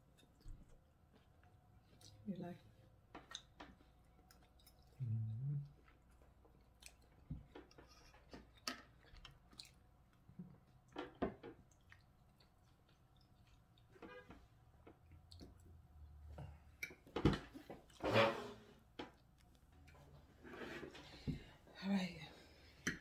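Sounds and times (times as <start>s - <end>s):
person chewing wetly: 0.0s - 2.2s, 3.2s - 13.9s, 14.9s - 15.9s
low voice hum: 5.0s - 5.8s.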